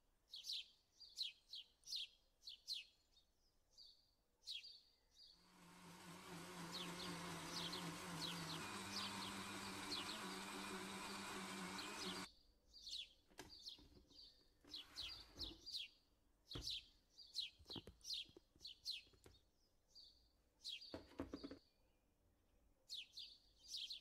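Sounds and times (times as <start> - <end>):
blender humming: 5.4 - 12.3.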